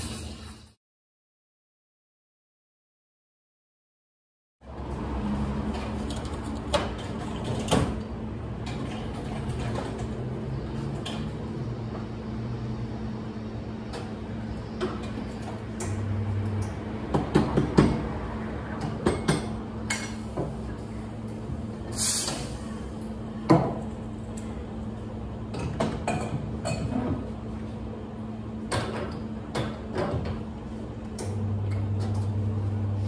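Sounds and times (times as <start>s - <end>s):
cups and jugs clinking: 25.5s - 27.3s.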